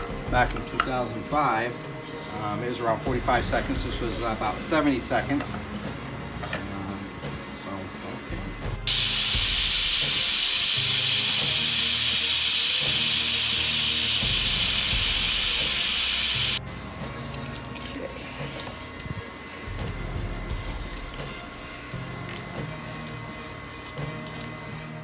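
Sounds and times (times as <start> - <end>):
air hissing out of tire: 8.9 - 16.6.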